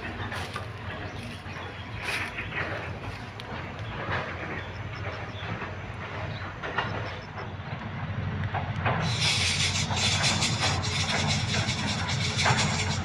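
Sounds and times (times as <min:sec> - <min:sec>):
leaves and stems rustling: 0:00.0 - 0:04.4
steady high hiss: 0:09.0 - 0:13.0.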